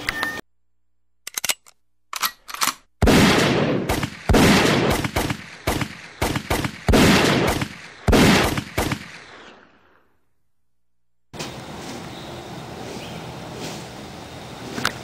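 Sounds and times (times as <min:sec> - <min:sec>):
gunshots with echo: 0:03.0 - 0:09.6
quick small gunshots: 0:03.0 - 0:09.6.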